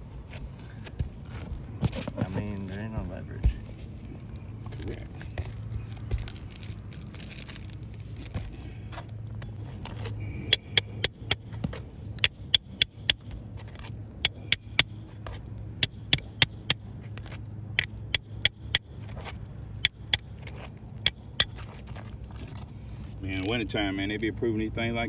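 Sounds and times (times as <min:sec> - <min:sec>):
pry bar scraping shingles: 0:08.3 - 0:23.2
hammer tapping metal pry bar: 0:10.5 - 0:11.6, 0:12.2 - 0:13.4, 0:14.2 - 0:15.0, 0:15.8 - 0:16.9, 0:17.8 - 0:18.9, 0:19.8 - 0:20.4, 0:21.0 - 0:21.8.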